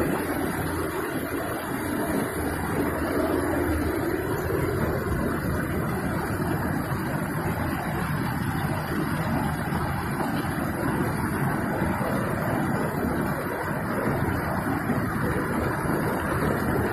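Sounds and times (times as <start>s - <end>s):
floodwater rushing in a torrent: 0.0s - 16.9s.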